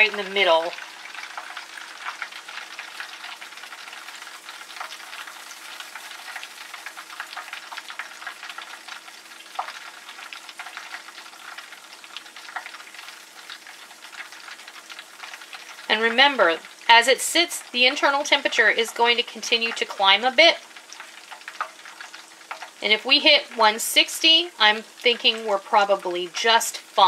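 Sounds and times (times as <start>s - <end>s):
frying oil sizzling: 0.0s - 27.0s.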